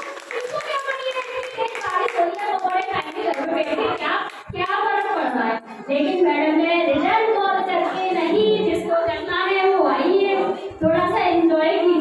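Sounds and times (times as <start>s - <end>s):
people clapping along: 0.0s - 5.3s.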